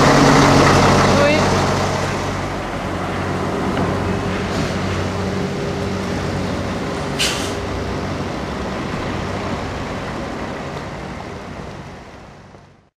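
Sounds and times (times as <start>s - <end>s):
diesel lorry engine driving off: 0.0s - 12.9s
air brakes hiss: 7.2s - 7.7s.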